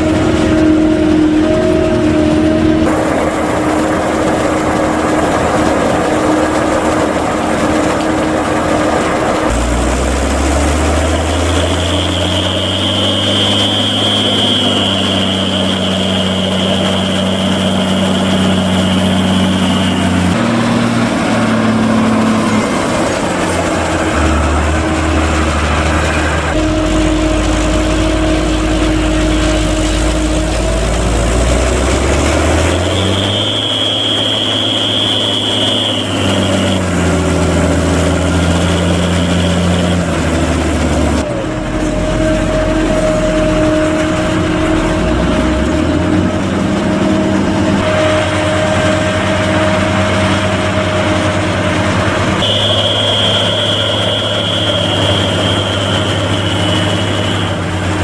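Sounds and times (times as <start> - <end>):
high steady whine: 0.0 - 58.0
tractor diesel engine working: 0.0 - 58.0.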